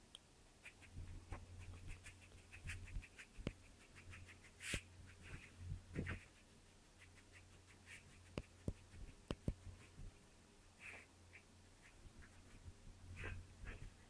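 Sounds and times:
small dog sniffing: 0.6s - 10.0s, 10.8s - 12.5s.

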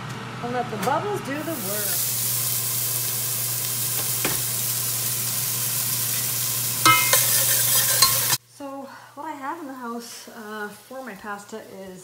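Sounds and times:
onions sizzling in hot oil: 1.4s - 8.4s, 9.7s - 12.0s
spoon scraping a pot: 6.9s - 8.4s.

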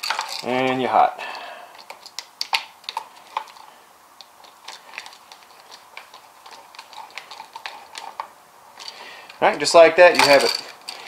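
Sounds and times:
screwdriver turning a screw: 4.7s - 8.2s.

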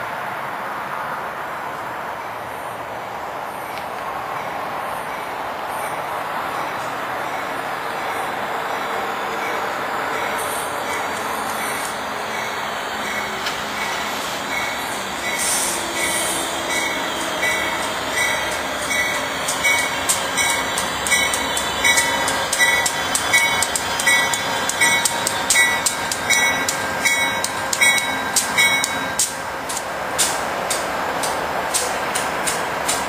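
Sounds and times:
train rumbling past: 0.0s - 33.0s
locomotive bell ringing: 6.7s - 29.5s.

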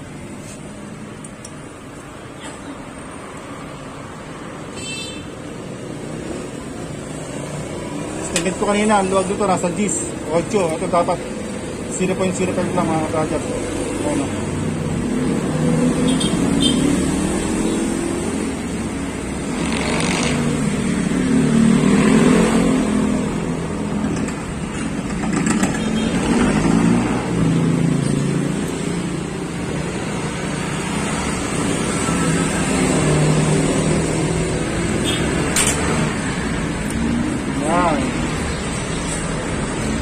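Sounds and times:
metallic clicks of hand tools: 35.5s - 35.9s.

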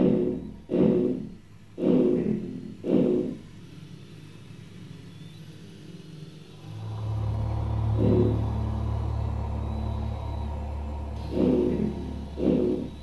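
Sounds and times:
deep steady drone: 0.0s - 13.0s
pitched swell: 3.5s - 13.0s.

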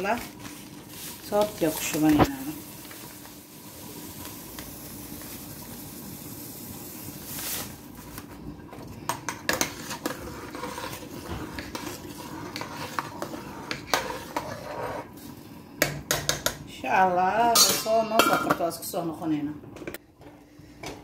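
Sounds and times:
metal spatula scraping pot: 8.9s - 15.3s.

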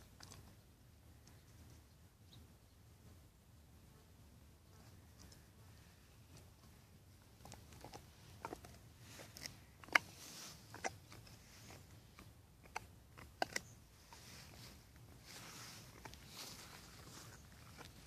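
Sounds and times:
dog gnawing a bone: 7.3s - 18.0s.

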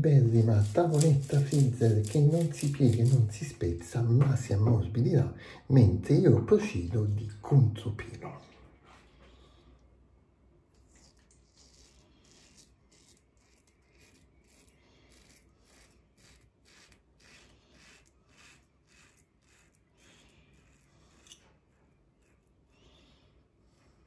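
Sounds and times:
razor strokes on stubble: 0.2s - 3.3s, 10.9s - 24.0s.

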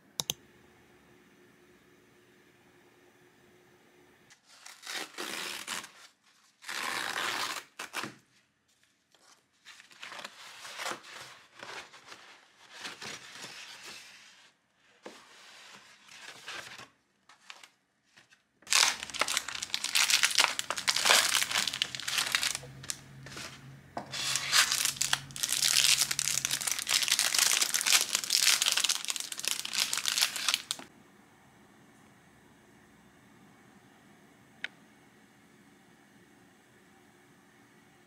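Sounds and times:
packaging crinkling: 18.7s - 30.9s.

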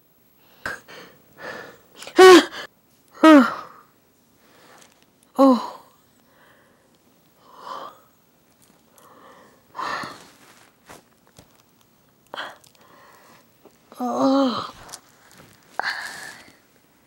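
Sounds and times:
woman sobbing: 2.1s - 3.7s.

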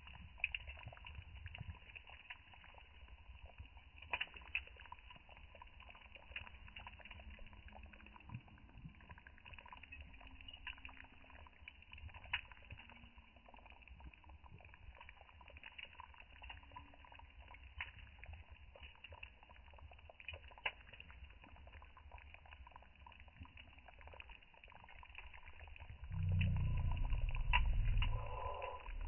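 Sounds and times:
beans simmering in a pot: 0.0s - 29.0s
wood fire pops and crackles: 0.0s - 29.0s
low rumble: 26.0s - 29.0s.

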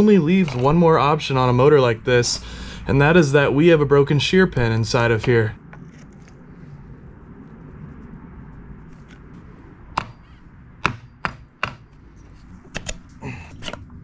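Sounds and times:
hammer tapping on metal propeller: 10.0s - 12.0s.

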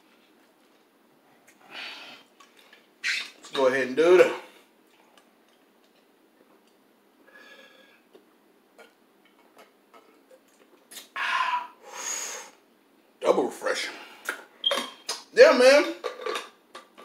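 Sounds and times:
breathy aah exhales: 11.2s - 12.6s.

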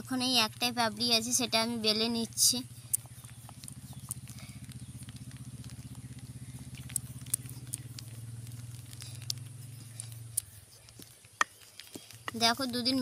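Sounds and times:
low engine drone: 0.0s - 11.1s.

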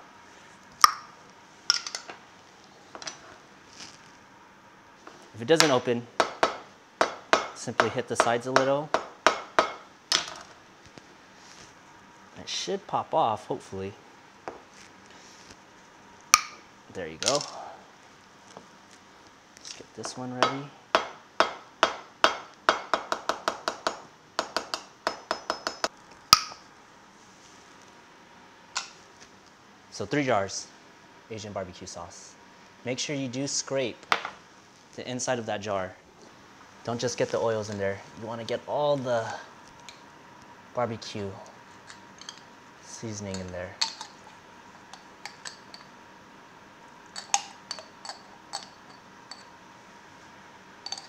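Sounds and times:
spoon clinking in glass jar: 41.8s - 42.5s, 44.9s - 45.9s, 47.1s - 49.5s.

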